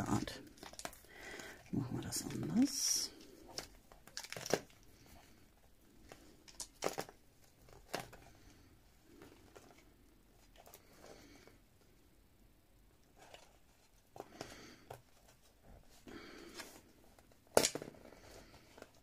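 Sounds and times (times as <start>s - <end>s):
paper rustling and crinkling: 0.1s - 5.4s, 6.0s - 11.0s.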